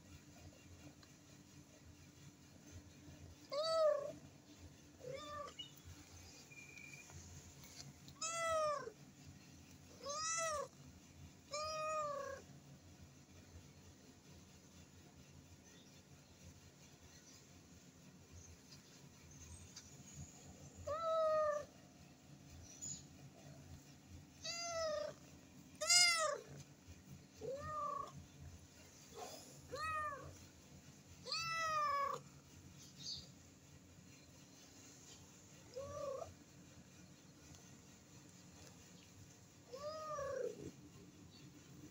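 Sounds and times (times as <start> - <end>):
cat meowing: 5.0 - 5.7, 8.1 - 9.0, 10.0 - 10.8, 11.5 - 12.4, 24.4 - 25.2, 25.8 - 26.5, 27.4 - 28.2, 29.7 - 30.4, 31.2 - 32.2, 39.7 - 40.7
kitten meowing: 8.2 - 8.9, 24.4 - 25.2, 25.8 - 26.4, 31.2 - 32.2.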